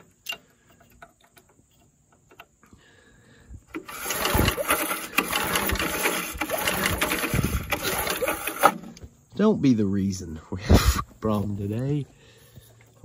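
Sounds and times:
recoil starter cranking engine: 3.5s - 9.0s.

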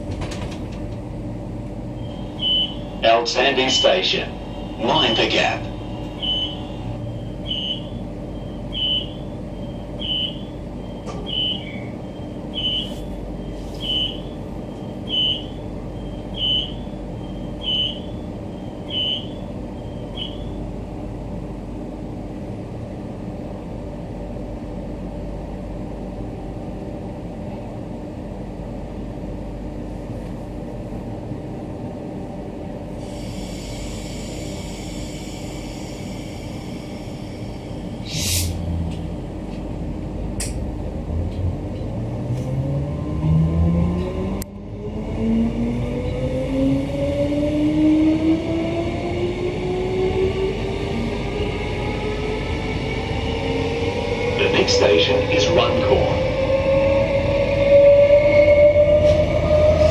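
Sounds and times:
train equipment hum: 0.0s - 59.9s
electronic door beeper: 2.0s - 2.9s, 6.1s - 18.1s
hiss of air: 33.0s - 38.7s.

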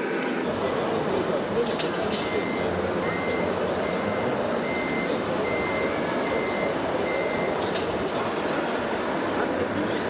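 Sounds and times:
reversing warning beeps: 2.2s - 7.7s.

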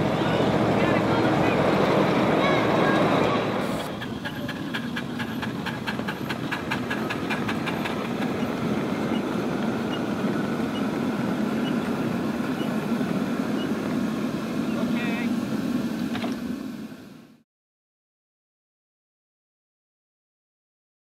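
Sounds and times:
miniature locomotive rolling past: 0.0s - 12.9s.

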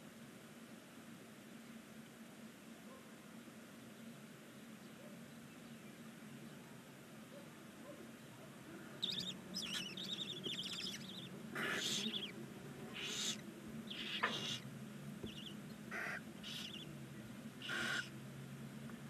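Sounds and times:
owl chicks hissing: 9.0s - 16.9s, 17.6s - 18.2s
owl chicks chittering: 9.0s - 17.0s, 17.6s - 18.2s.

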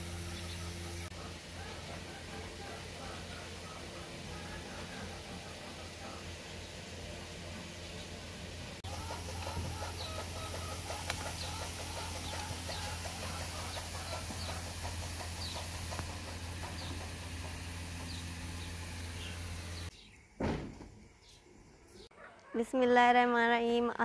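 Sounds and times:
steady low hum: 0.0s - 20.3s
chickens clucking: 0.3s - 8.2s, 8.8s - 19.9s.

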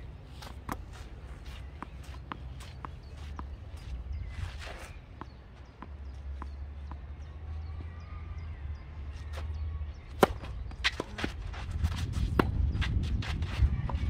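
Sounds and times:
racket hitting tennis ball: 10.1s - 12.9s.

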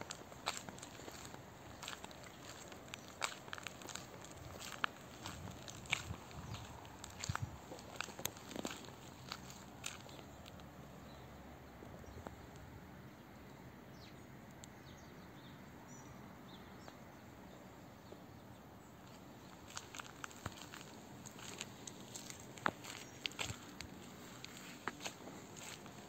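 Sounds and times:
footsteps on pavement: 0.0s - 10.7s, 19.0s - 26.0s
outdoor ambience hiss: 0.0s - 26.0s.

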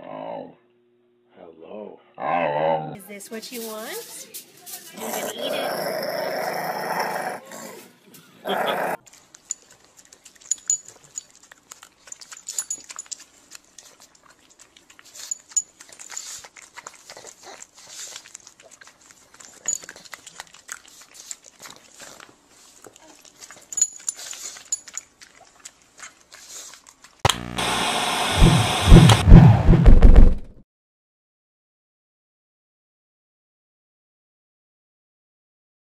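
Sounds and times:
dog chewing leash: 9.0s - 27.2s.

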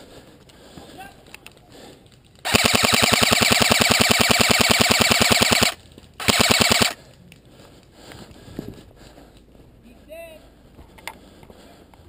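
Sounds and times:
airsoft rifle firing full auto: 2.4s - 7.0s.

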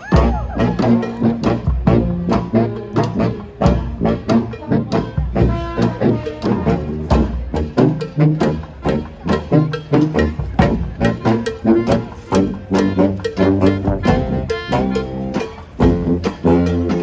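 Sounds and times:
brass band playing: 0.0s - 17.0s
steady drum beat: 0.0s - 17.0s.

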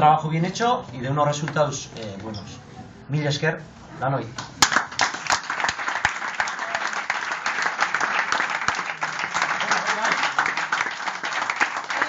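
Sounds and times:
people applauding: 4.4s - 12.0s.

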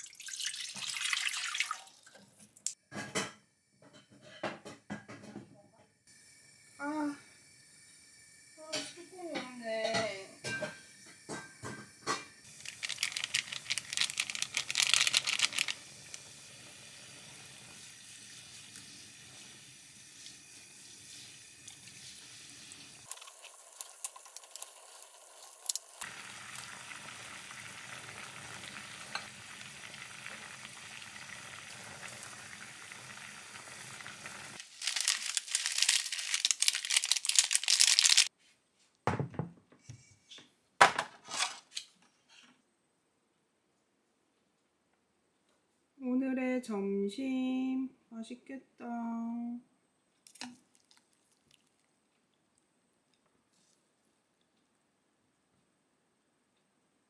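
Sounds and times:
food sizzling in a pan: 6.1s - 38.3s.

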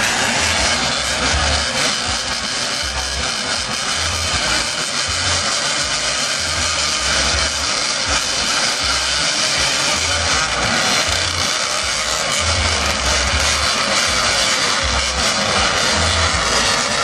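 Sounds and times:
motorcycle engines revving: 0.0s - 17.0s.

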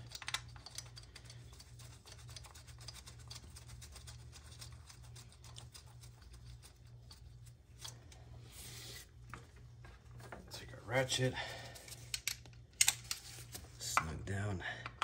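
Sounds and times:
small clicks of bolt handling: 0.0s - 1.4s, 11.9s - 13.3s
steady low hum: 0.0s - 15.0s.

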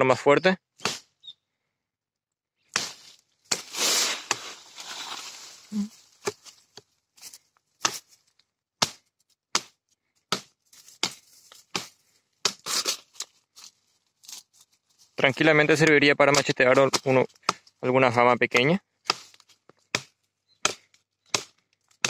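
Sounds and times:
knife chopping a branch: 0.8s - 1.1s, 2.7s - 5.1s, 6.1s - 8.2s, 8.8s - 13.3s, 15.8s - 17.8s, 18.5s - 22.0s
wood splitting: 2.7s - 5.2s, 7.8s - 8.2s, 8.8s - 14.4s, 15.8s - 17.8s, 18.5s - 22.0s
rustling tearing noise: 2.9s - 6.6s, 12.6s - 15.2s.

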